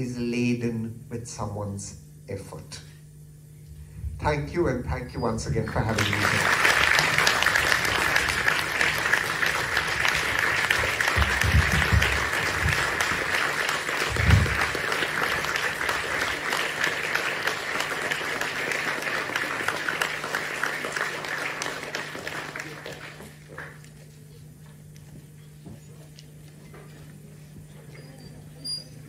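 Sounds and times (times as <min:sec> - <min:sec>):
audience applauding: 0:05.8 - 0:24.0
low thumps: 0:11.1 - 0:13.0.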